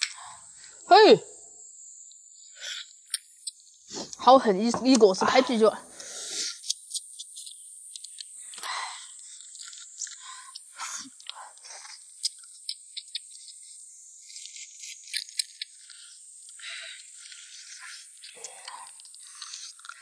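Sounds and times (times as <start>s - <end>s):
sucking and chewing: 6.0s - 20.0s
crayfish shells cracking: 6.5s - 20.0s.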